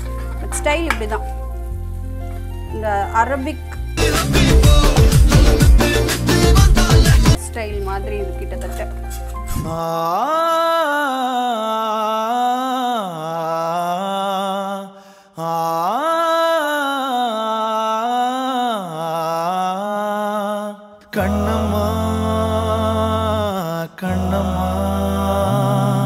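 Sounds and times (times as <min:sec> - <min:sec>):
voice-like chanting melody: 0:04.0 - 0:07.4, 0:09.6 - 0:26.0.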